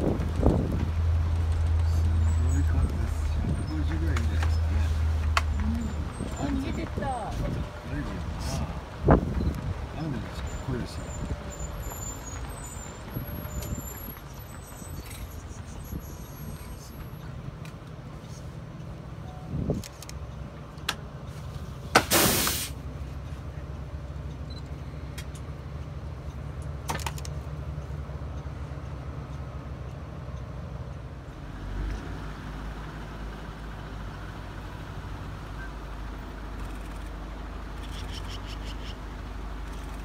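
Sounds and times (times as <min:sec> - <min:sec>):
vehicle engine idling: 0:00.0 - 0:40.0
loud burst of hiss: 0:22.0 - 0:22.8.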